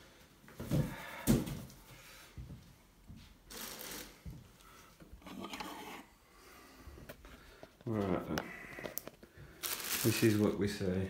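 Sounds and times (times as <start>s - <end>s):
plastic wrap crinkling: 3.5s - 4.3s, 8.8s - 11.0s.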